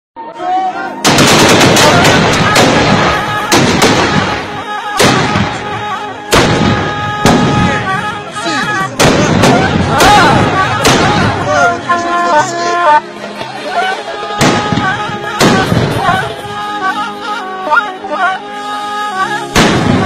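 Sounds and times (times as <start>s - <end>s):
rifle shots echoing: 1.0s - 7.8s, 9.0s - 11.4s, 14.4s - 16.1s, 19.6s - 20.0s.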